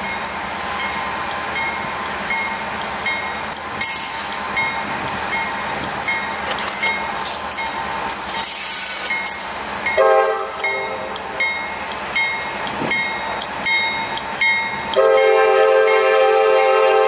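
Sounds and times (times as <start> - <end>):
train air horn blasts: 10.0 - 11.1, 15.0 - 17.0.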